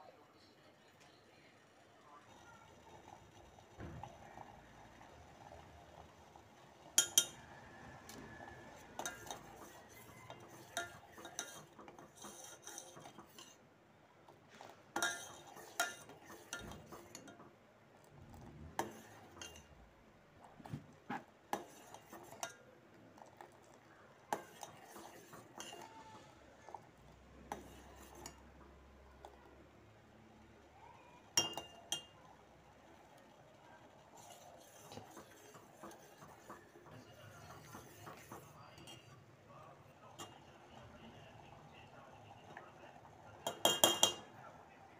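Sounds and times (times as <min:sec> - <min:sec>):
spoon clinking and scraping a pan: 0:06.9 - 0:07.5, 0:08.8 - 0:13.6, 0:14.9 - 0:17.5, 0:18.4 - 0:19.7, 0:21.2 - 0:22.6, 0:23.2 - 0:25.9, 0:27.5 - 0:28.6, 0:31.4 - 0:32.2, 0:34.2 - 0:39.2, 0:43.4 - 0:44.3.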